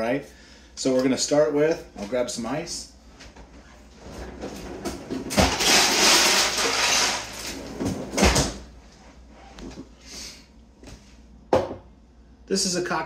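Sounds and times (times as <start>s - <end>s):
ice rattling: 5.4s - 7.6s.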